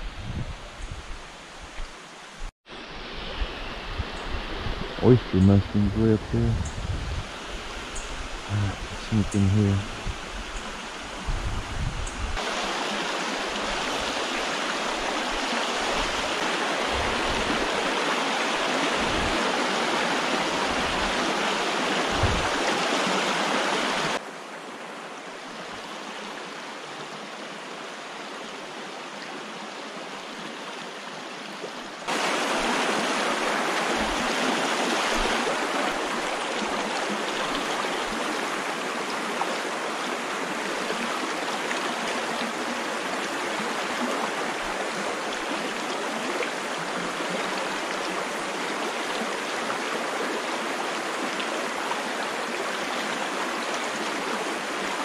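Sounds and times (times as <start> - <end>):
creek rushing over stones: 12.4 - 55.0
dull low bumps: 22.1 - 22.6.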